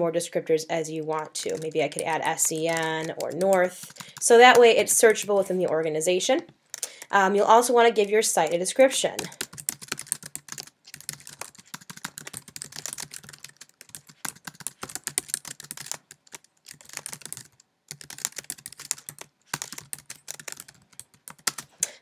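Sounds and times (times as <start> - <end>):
typing on a computer keyboard: 1.2 - 5.6, 9.1 - 22.0.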